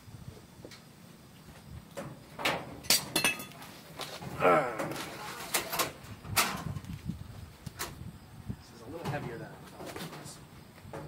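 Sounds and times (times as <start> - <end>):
person grunting: 4.4 - 5.0.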